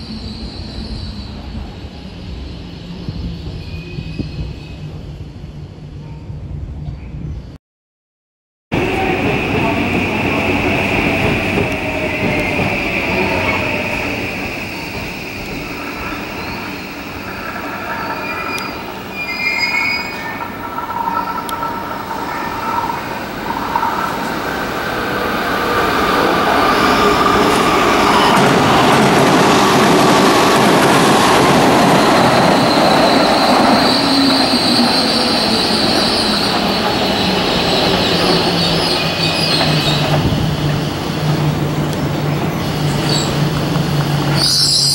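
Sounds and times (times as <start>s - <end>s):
train wheels rushing on rail: 8.8s - 44.9s
high wheel squeal: 9.0s - 28.9s, 31.6s - 44.9s.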